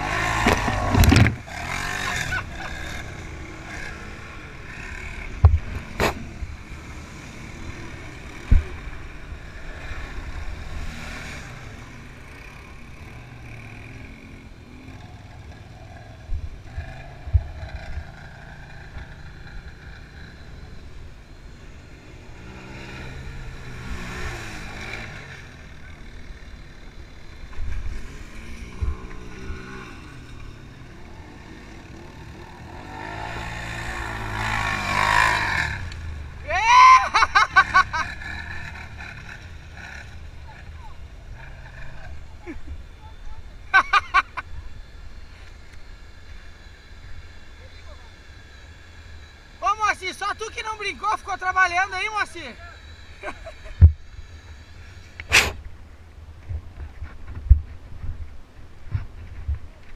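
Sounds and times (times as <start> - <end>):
quad bike engines revving: 0.0 - 58.2.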